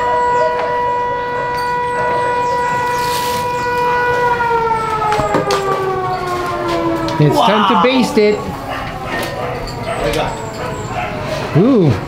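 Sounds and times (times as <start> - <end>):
siren winding down: 0.0 - 11.0.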